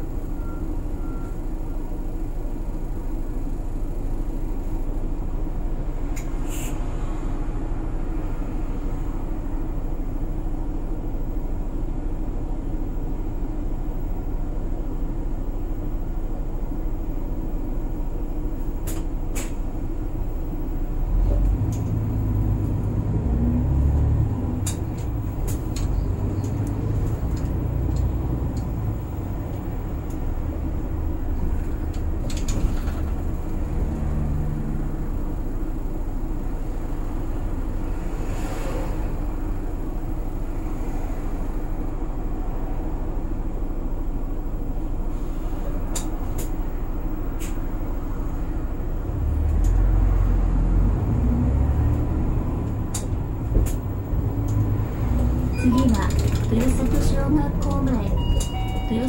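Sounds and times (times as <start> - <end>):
bus engine and road rumble: 0.0 - 59.0
short sharp hisses and clicks: 6.4 - 6.8.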